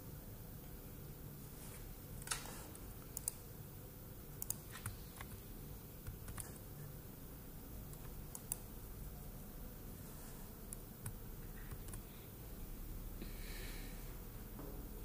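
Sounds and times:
faint low hum: 0:00.0 - 0:15.0
keyboard and mouse clicks: 0:02.2 - 0:03.4, 0:04.4 - 0:05.4, 0:06.0 - 0:06.6, 0:07.9 - 0:08.7, 0:10.7 - 0:12.1.

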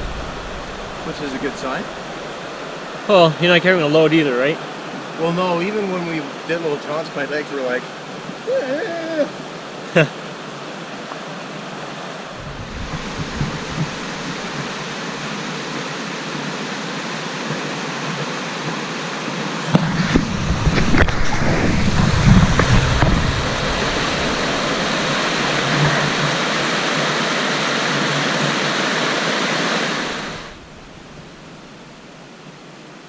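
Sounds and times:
low rumbles: 0:00.0 - 0:02.9, 0:12.4 - 0:14.8, 0:19.7 - 0:26.2, 0:30.1 - 0:32.0
rushing white water: 0:00.0 - 0:33.0.

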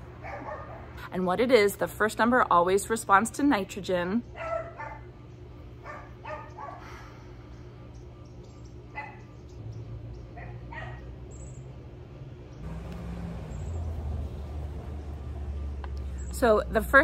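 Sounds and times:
puppy yapping: 0:00.2 - 0:00.9, 0:04.4 - 0:05.0, 0:10.4 - 0:11.0
low rumble: 0:12.6 - 0:17.0.

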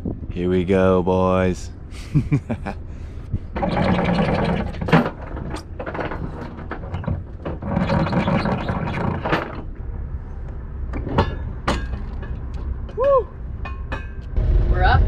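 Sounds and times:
anchor chain rattling over bow: 0:03.5 - 0:09.7.

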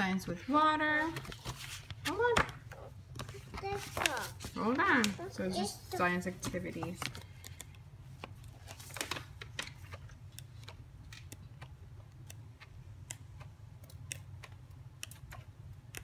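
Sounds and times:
book pages flipping: 0:00.9 - 0:16.0.

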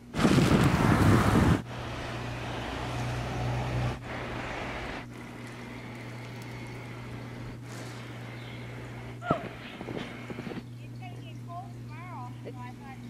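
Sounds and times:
constant low hum: 0:00.0 - 0:13.0
wind buffeting microphone: 0:00.1 - 0:01.7.

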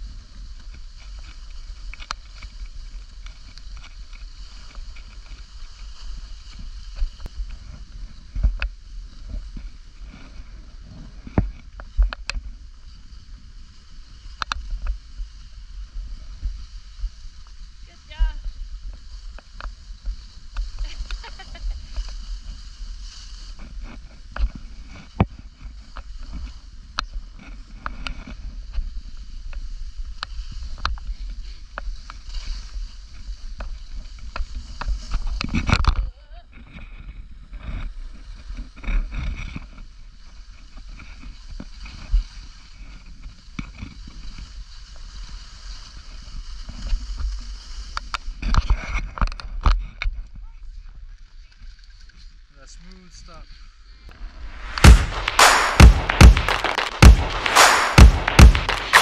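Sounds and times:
steady low rumble: 0:54.1 - 0:59.0
scattered clicks and knocks: 0:54.4 - 0:59.0.

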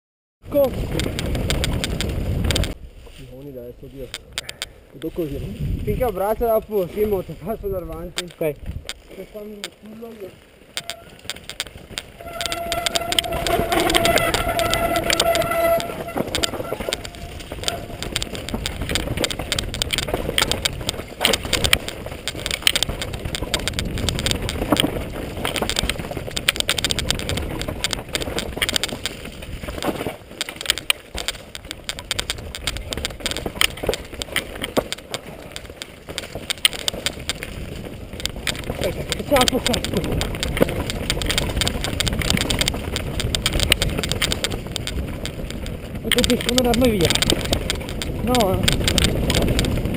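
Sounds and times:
bike rattling over rough ground: 0:00.4 - 0:49.9
high squealing tone: 0:10.8 - 0:11.3, 0:12.1 - 0:18.5.

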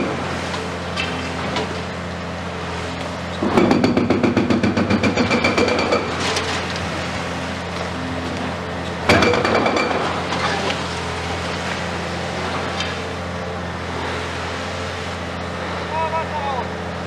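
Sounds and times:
diesel engine running: 0:00.0 - 0:17.0
hydraulic breaker hammering concrete: 0:03.4 - 0:06.5, 0:09.0 - 0:10.8.

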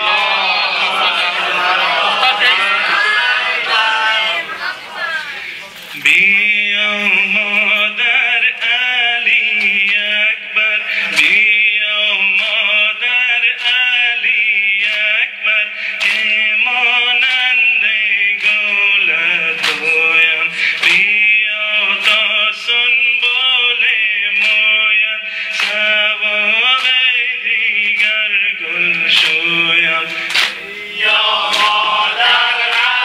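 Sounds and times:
man chanting a lament: 0:06.0 - 0:32.4.

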